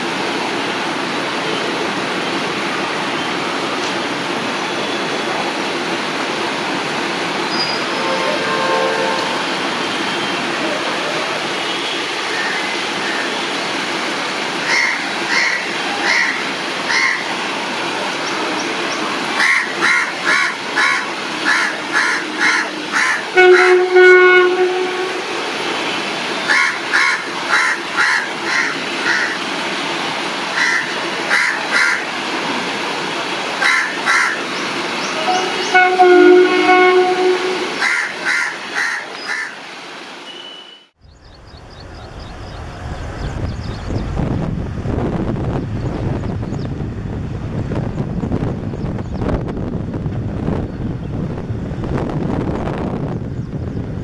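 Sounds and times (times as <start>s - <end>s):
diesel locomotive rumble: 0.0s - 39.8s, 41.0s - 54.0s
locomotive horn blast: 7.6s - 10.6s, 23.3s - 25.8s, 35.1s - 37.9s
crows cawing: 19.4s - 23.2s, 26.5s - 29.4s, 30.6s - 32.0s, 33.6s - 34.4s, 37.8s - 39.6s.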